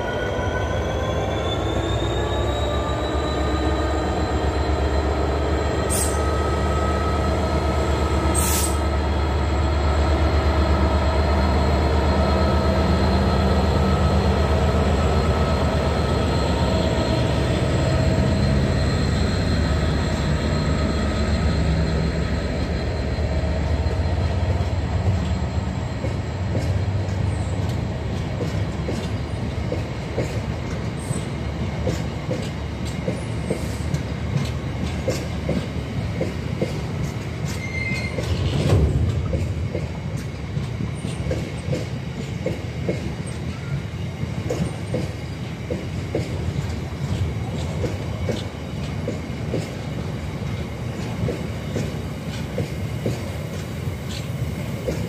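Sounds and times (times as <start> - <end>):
diesel locomotive engine hum: 0.0 - 55.0
train wheels clattering: 24.0 - 55.0.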